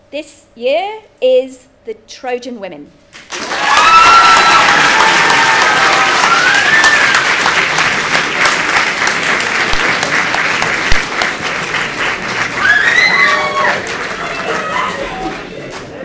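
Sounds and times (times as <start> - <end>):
audience applauding: 3.3 - 16.0
voices cheering: 3.4 - 7.5, 12.5 - 15.6.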